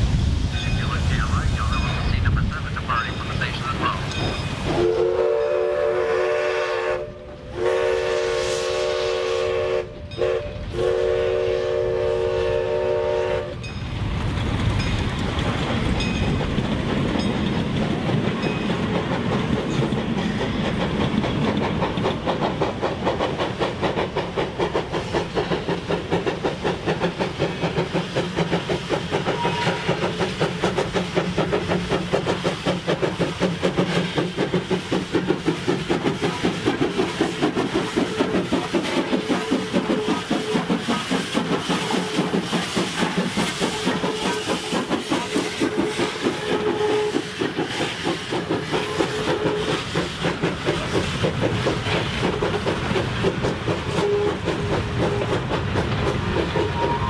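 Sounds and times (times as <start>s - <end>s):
steam locomotive chime whistle: 3.8s - 13.8s, 29.2s - 30.0s, 43.6s - 47.5s, 48.7s - 49.9s, 53.9s - 55.4s, 56.6s - 57.0s
locomotive rhythmic exhaust beat: 14.6s - 57.0s.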